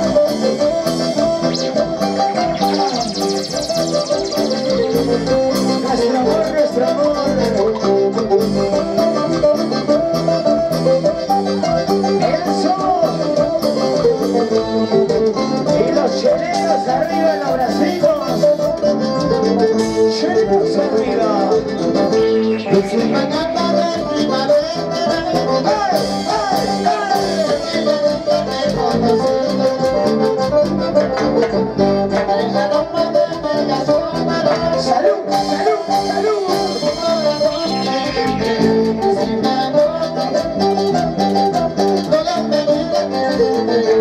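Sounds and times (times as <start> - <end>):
lead guitar line: 0.0 - 44.0
live rock band playing: 0.0 - 44.0
person singing: 0.0 - 44.0.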